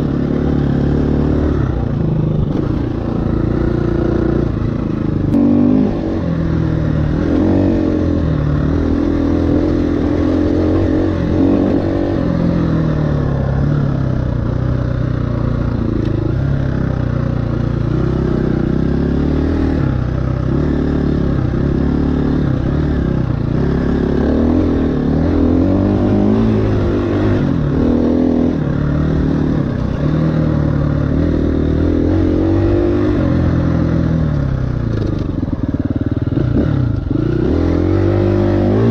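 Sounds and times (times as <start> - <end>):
dirt bike engine revving: 0.0 - 14.5, 17.6 - 38.9.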